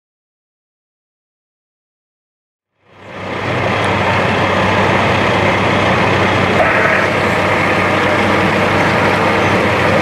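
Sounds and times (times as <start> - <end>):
large vehicle engine idling: 2.8 - 10.0.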